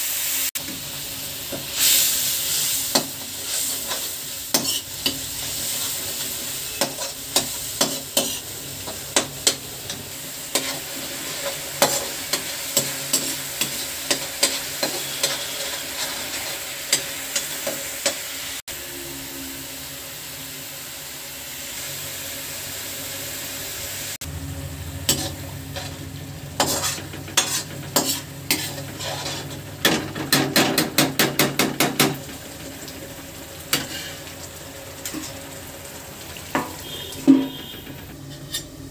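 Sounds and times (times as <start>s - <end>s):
paste sizzling in hot oil: 0.0s - 38.9s
metal spatula scraping a pan: 1.5s - 18.3s, 25.1s - 31.7s, 33.7s - 34.4s, 35.0s - 35.5s, 36.5s - 38.9s
low hum: 24.2s - 26.6s.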